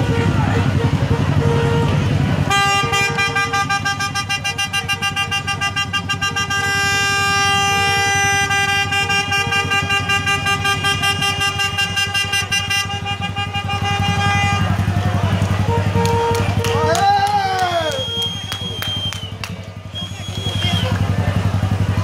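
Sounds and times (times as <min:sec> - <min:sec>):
short horn honks: 0:00.0 - 0:14.9, 0:15.6 - 0:16.9
long continuous horn blast: 0:00.0 - 0:17.2, 0:17.8 - 0:22.0.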